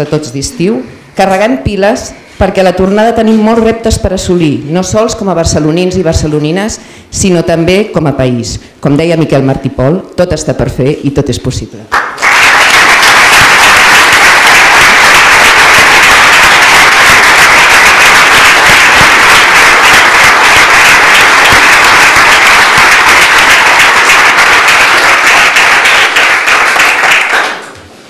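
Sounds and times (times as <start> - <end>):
crowd applauding: 11.9 - 27.8.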